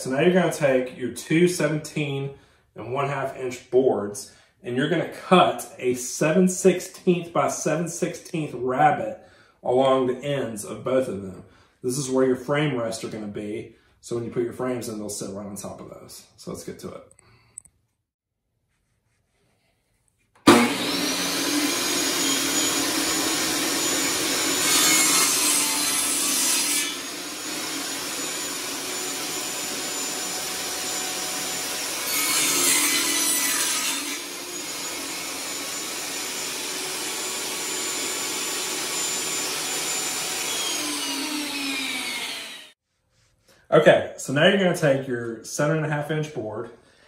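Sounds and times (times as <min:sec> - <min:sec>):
table saw cutting wood board: 0:20.4 - 0:42.8
table saw running: 0:20.4 - 0:42.8.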